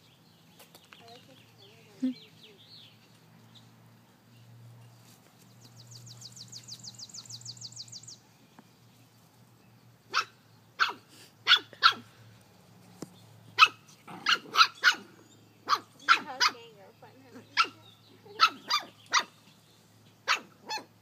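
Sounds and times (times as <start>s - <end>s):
puppies yapping: 10.1s - 12.1s, 13.5s - 16.7s, 17.4s - 19.5s, 20.2s - 21.0s.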